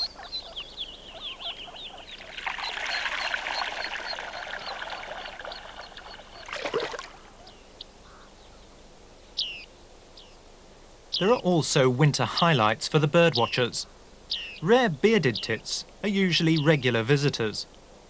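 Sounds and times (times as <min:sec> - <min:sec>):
water splashing: 0:02.0 - 0:07.3.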